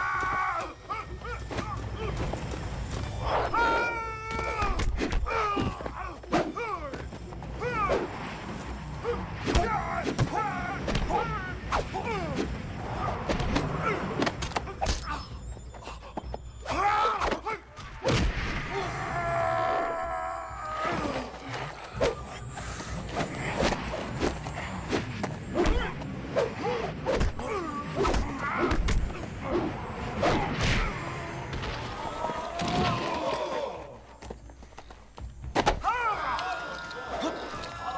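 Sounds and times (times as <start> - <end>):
fighters shouting cries: 30.4 - 34.2, 35.8 - 37.9.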